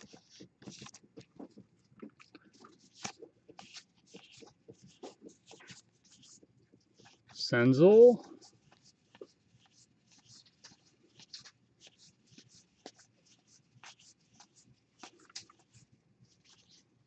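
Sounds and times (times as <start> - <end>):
cards flipping: 0.0 - 1.6, 2.4 - 6.4, 8.5 - 15.8.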